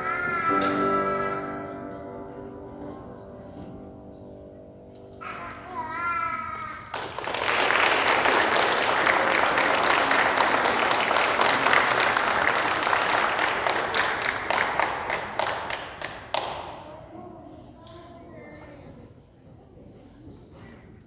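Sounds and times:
audience applauding: 0:06.9 - 0:16.8.

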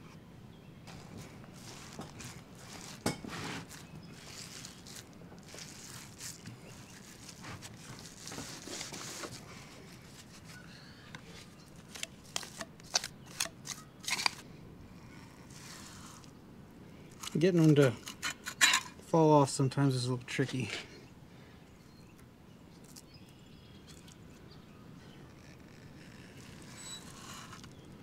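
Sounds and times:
tool crunching through compost: 0:00.8 - 0:10.6.

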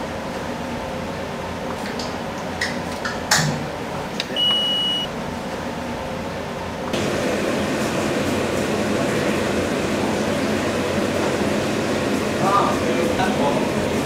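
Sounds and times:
electronic beep: 0:04.3 - 0:05.1.

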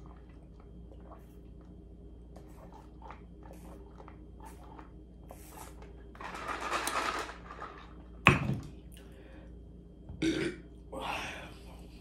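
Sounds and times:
gulping and sipping: 0:00.0 - 0:06.0
plastic tumbler rattling: 0:06.2 - 0:07.9
loud short burp: 0:10.2 - 0:10.6.

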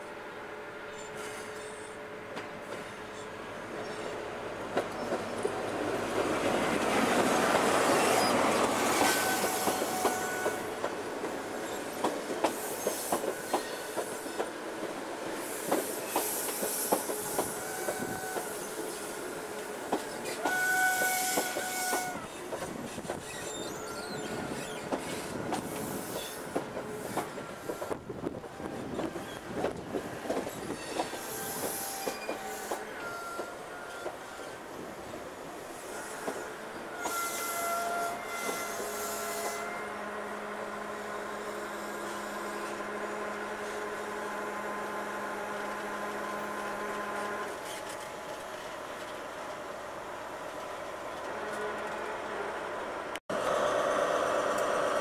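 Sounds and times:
diesel locomotive passing: 0:00.0 - 0:55.0
brake squeals: 0:00.9 - 0:02.0, 0:22.3 - 0:25.3
train wheels clicking over rail joints: 0:08.5 - 0:18.6, 0:24.5 - 0:34.2.

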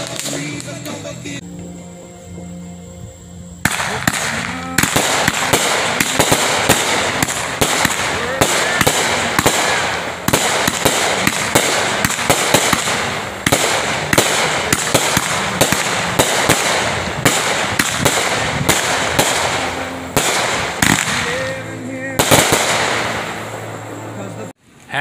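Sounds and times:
fireworks bangs: 0:00.0 - 0:01.4, 0:03.6 - 0:24.5
fireworks crackle: 0:00.0 - 0:01.4, 0:03.6 - 0:24.5.

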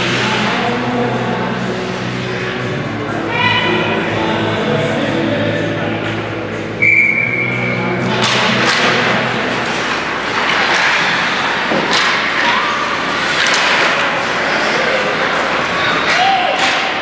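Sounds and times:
crowd of voices: 0:00.0 - 0:17.0
ice rink music: 0:00.0 - 0:17.0
high whistle or horn tone: 0:06.8 - 0:07.8.

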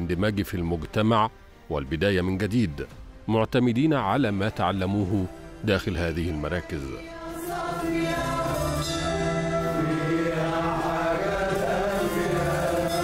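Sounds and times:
keyboards: 0:00.0 - 0:13.0
men singing held notes: 0:07.0 - 0:13.0.

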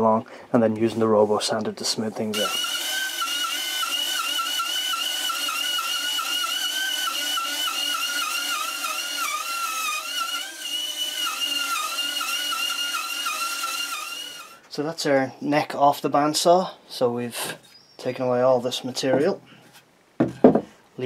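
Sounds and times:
bandsaw cutting wood: 0:02.4 - 0:14.6.

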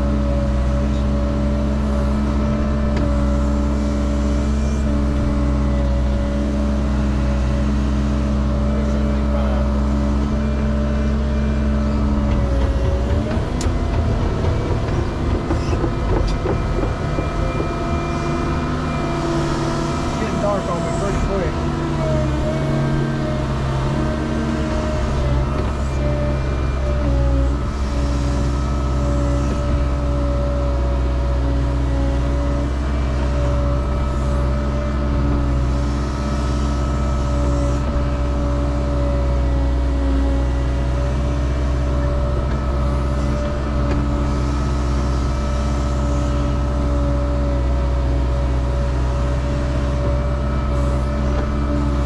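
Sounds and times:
diesel engine rumble: 0:00.0 - 0:52.0
steady whine: 0:08.8 - 0:30.2.

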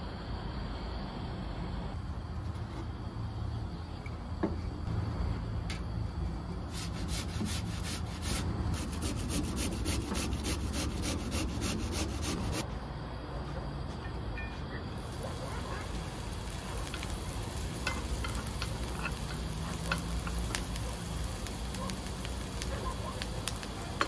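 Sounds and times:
potato grated on metal grater: 0:06.7 - 0:12.6.

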